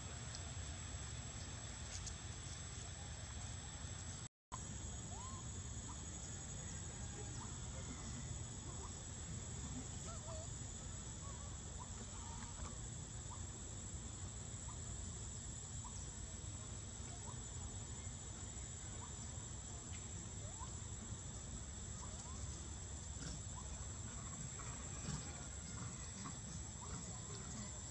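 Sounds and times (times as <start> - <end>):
steady hiss and low rumble: 0.0 - 27.9.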